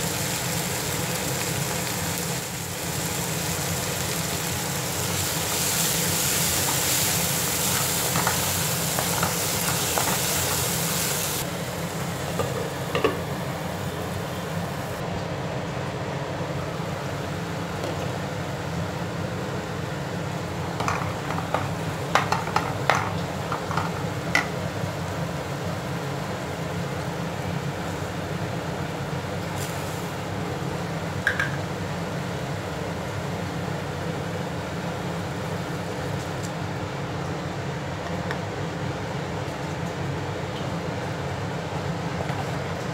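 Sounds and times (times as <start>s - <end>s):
onions sizzling in oil: 0.0s - 15.0s, 20.4s - 33.3s.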